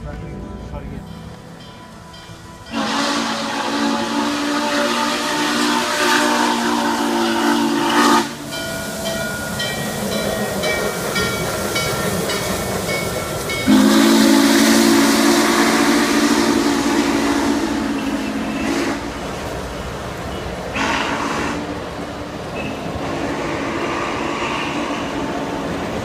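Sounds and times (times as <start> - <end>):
locomotive bell ringing: 0.0 - 4.1, 7.1 - 16.2, 17.0 - 20.6, 22.5 - 23.0
train rolling by: 0.0 - 26.0
steam whistle chord: 1.8 - 8.7, 13.6 - 19.2.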